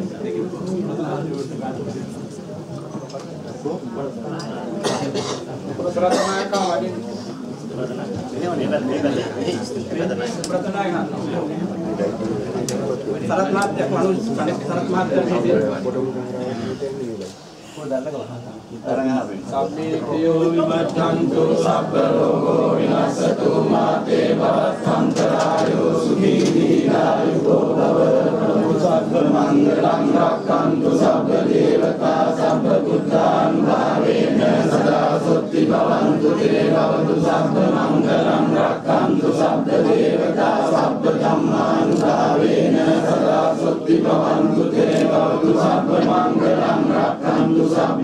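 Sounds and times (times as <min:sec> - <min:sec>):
monks chanting together: 0:19.8 - 0:48.0.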